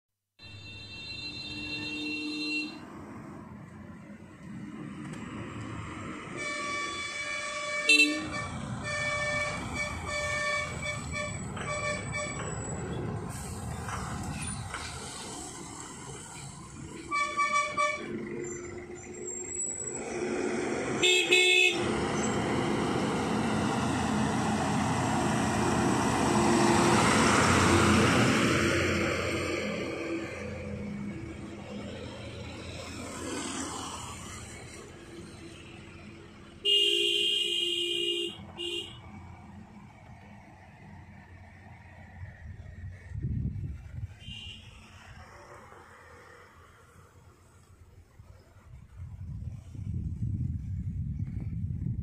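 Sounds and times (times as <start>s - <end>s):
vehicle horns honking: 0.4s - 2.9s, 6.3s - 13.0s, 17.0s - 18.3s, 21.0s - 22.0s, 36.6s - 39.2s, 44.2s - 44.9s
bus engine climbing: 0.4s - 52.0s
engine noise: 0.4s - 52.0s.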